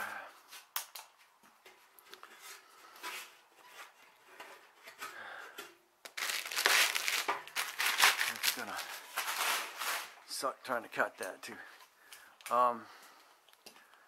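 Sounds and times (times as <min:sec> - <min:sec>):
metal crinkling: 0:06.1 - 0:10.3.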